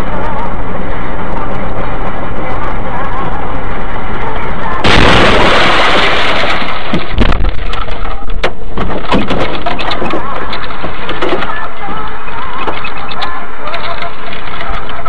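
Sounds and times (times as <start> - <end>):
vehicle explosion blast: 4.8 - 7.7
sharp cracks and thuds: 4.8 - 11.6.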